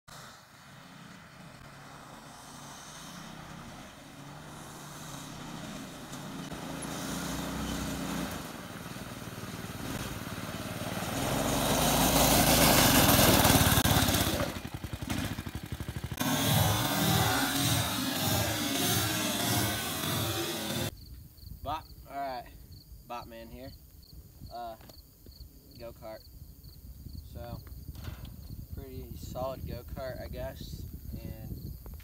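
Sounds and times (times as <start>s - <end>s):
go-kart engine running: 0.1s - 20.9s.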